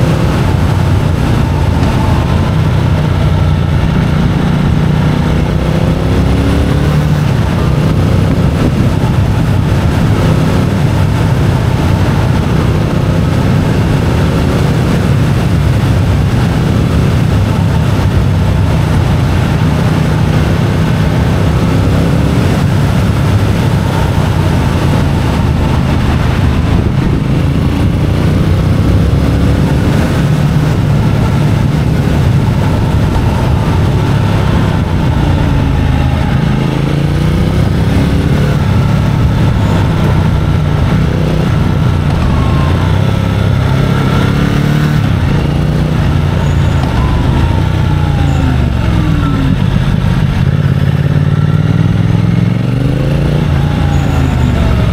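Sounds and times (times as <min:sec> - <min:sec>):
motorcycle engine accelerating: 0:00.0 - 0:54.9
wind noise: 0:00.0 - 0:54.9.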